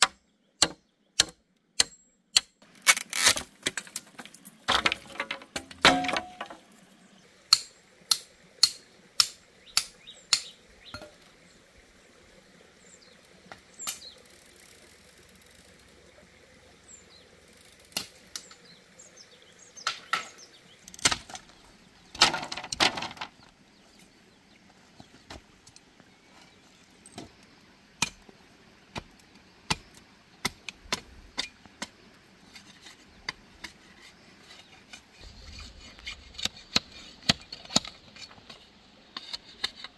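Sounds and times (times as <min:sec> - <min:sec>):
bamboo being knocked and chopped: 0:00.0 - 0:06.7, 0:07.5 - 0:11.2, 0:19.8 - 0:20.4, 0:21.0 - 0:21.5, 0:22.1 - 0:23.4.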